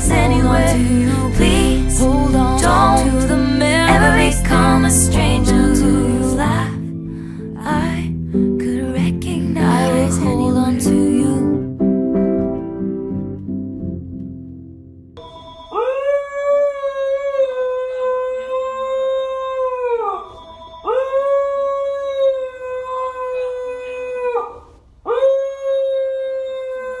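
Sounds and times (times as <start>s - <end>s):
husky howling: 20.9s - 27.0s.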